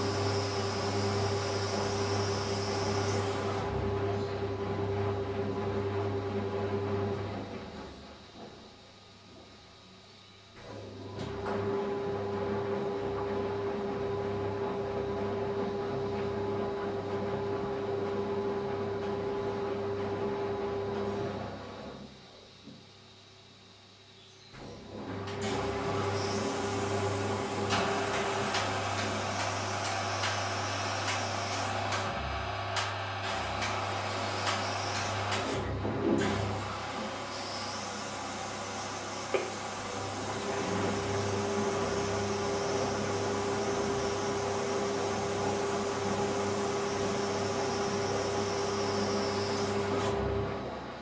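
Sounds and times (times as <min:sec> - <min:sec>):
washing machine motor hum: 0:00.0 - 0:08.5, 0:10.6 - 0:22.0, 0:24.6 - 0:51.0
washing machine drum turning: 0:25.4 - 0:36.7.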